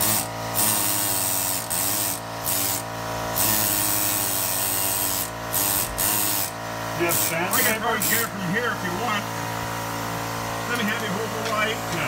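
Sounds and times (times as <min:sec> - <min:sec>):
air tool hissing: 0:00.0 - 0:08.3.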